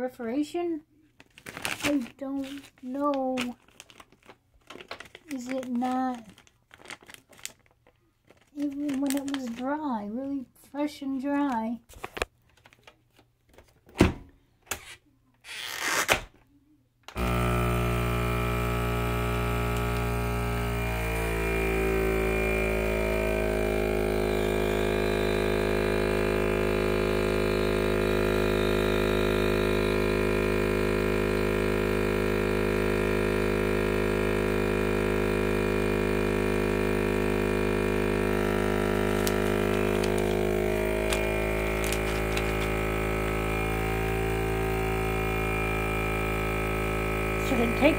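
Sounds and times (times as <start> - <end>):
vacuum sealer pump drone: 17.1 - 47.9.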